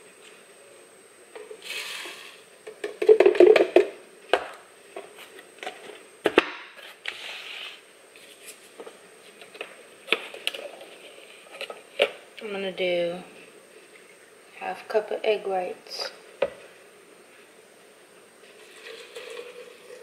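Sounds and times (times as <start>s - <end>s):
oats pouring into plastic cup: 18.4s - 20.0s.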